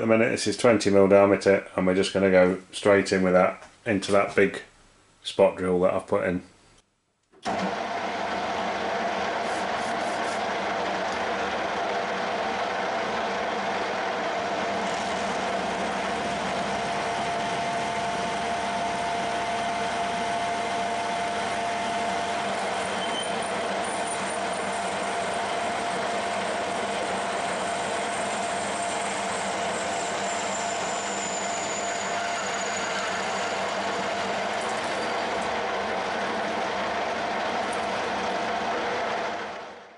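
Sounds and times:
metal lathe humming: 7.5 - 39.9
drill cutting high whine: 8.0 - 39.6.

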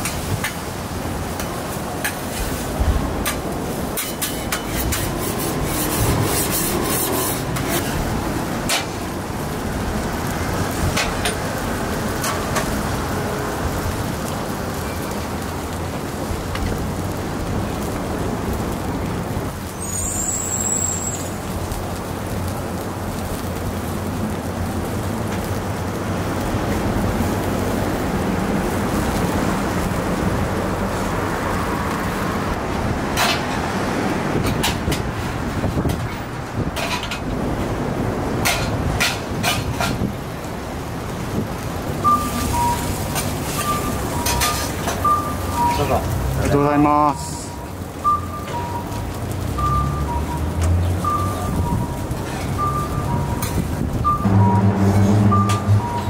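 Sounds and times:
food sizzling on a griddle: 0.0 - 56.0
metal spatula scraping steel plate: 4.0 - 8.0
high-pitched squeak or beep: 42.0 - 46.0, 51.1 - 51.9, 52.6 - 56.0.

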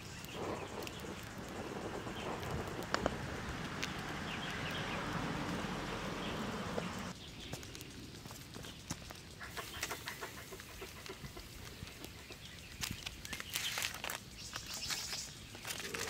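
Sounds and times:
charcoal crackling and popping: 0.0 - 16.0
aluminium foil rustling: 11.2 - 16.0.

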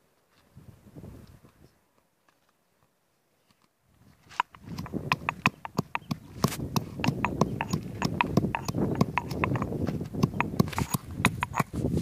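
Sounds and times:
pestle pounding in stone mortar: 4.8 - 11.7.

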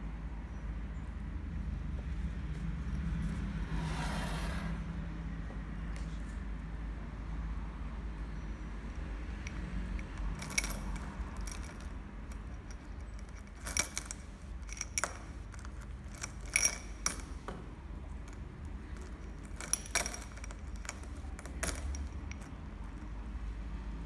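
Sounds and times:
coins clinking in glass bowl: 9.4 - 17.4, 18.2 - 23.1.

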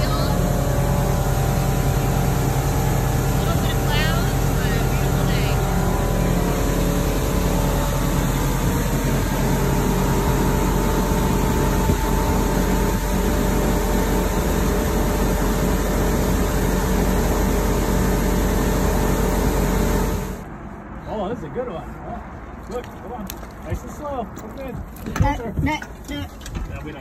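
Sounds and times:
rush of churning wake: 0.0 - 20.4
motorboat engine droning: 0.0 - 20.9.

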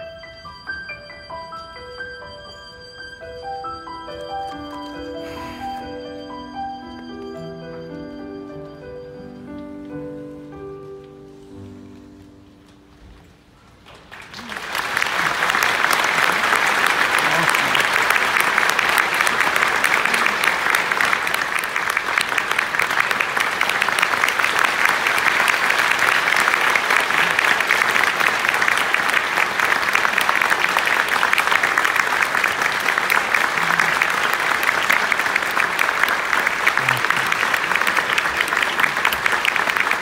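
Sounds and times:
audience applauding: 13.8 - 40.0.

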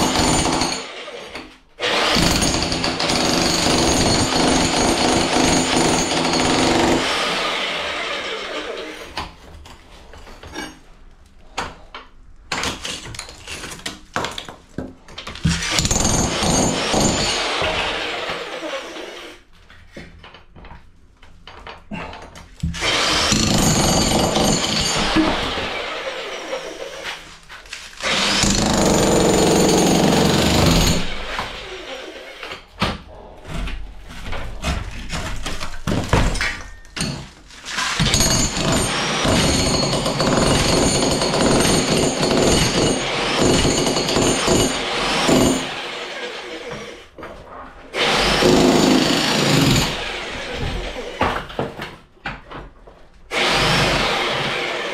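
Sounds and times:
jackhammer breaking brick: 0.0 - 7.7, 15.5 - 18.5, 22.7 - 26.7, 28.0 - 31.5, 35.4 - 45.9, 48.0 - 51.4, 53.3 - 54.9.

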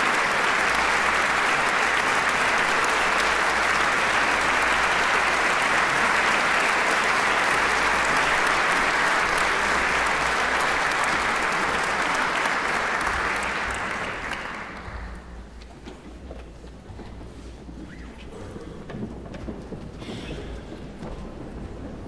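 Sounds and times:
audience applauding: 0.0 - 15.5.

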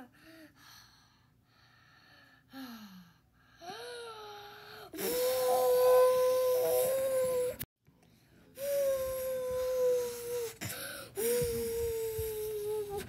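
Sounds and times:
cartoon voice whimpering: 5.0 - 7.6.

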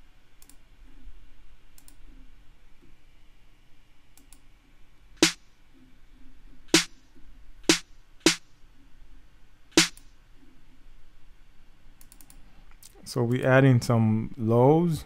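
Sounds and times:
snare drum hits: 6.8 - 7.0, 7.7 - 8.4.

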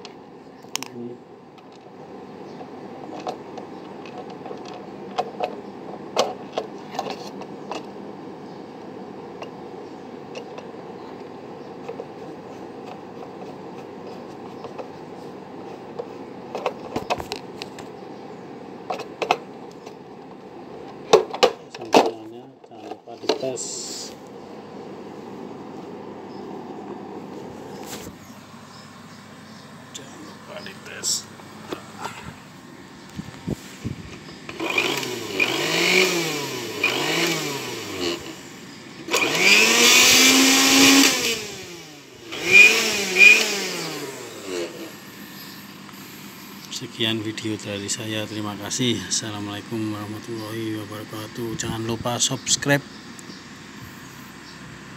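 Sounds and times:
steady background hiss: 7.6 - 54.9
blender parts clicking and knocking: 34.2 - 38.4, 42.3 - 44.8.

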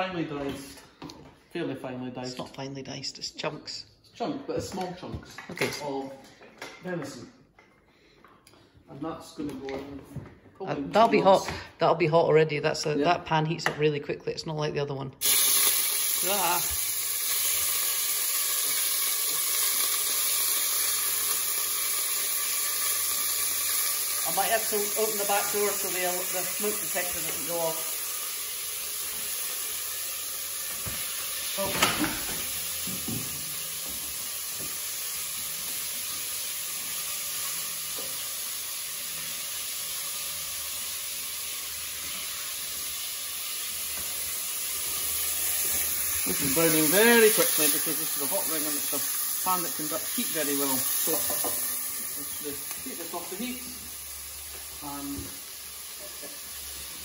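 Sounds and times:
meat sizzling in hot oil: 15.2 - 57.0.

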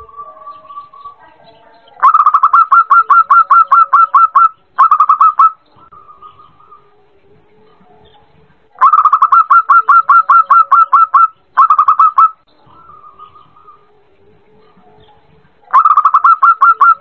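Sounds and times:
dove calling staccato notes: 1.9 - 6.9, 8.0 - 13.9, 15.0 - 17.0.

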